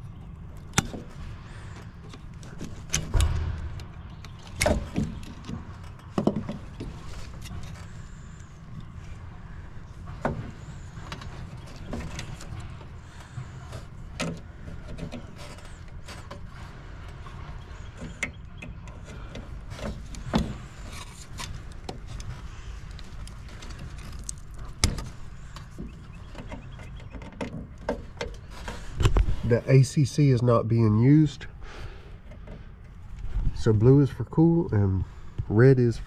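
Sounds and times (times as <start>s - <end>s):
steady low hum: 0.0s - 36.0s
hands clicking and knocking on wiring: 0.5s - 8.9s, 10.1s - 29.4s.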